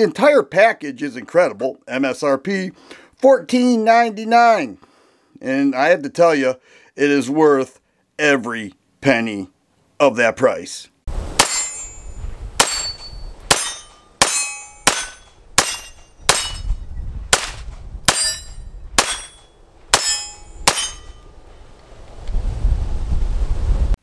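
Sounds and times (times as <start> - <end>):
wind rumbling on microphone: 11.1 - 13.5, 15.4 - 19.1, 20.6 - 24.0
metallic ring of steel targets: 11.4 - 16.8, 18.1 - 21.3
pistol shots: 12.6 - 16.7, 17.3 - 18.4, 19.0 - 21.1.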